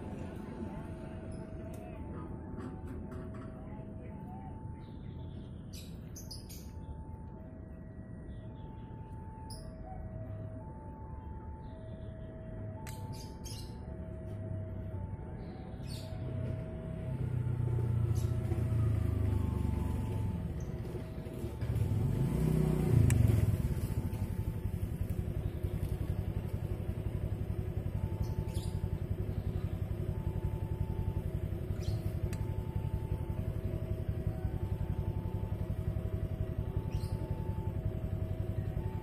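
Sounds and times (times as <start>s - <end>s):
level crossing alarm ringing: 0.0s - 39.0s
passing engine: 13.9s - 39.0s.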